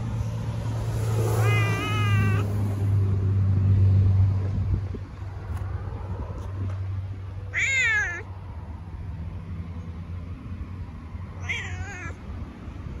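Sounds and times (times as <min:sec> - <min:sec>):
cat meowing: 0:01.4 - 0:02.5, 0:07.5 - 0:08.3, 0:11.4 - 0:12.2.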